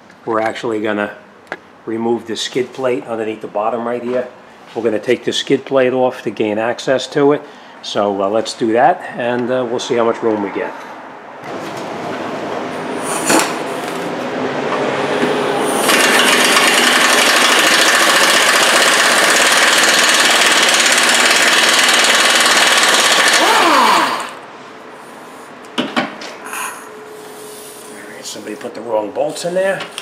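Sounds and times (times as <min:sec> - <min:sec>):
pneumatic air tool rattling: 0:15.7 - 0:24.4.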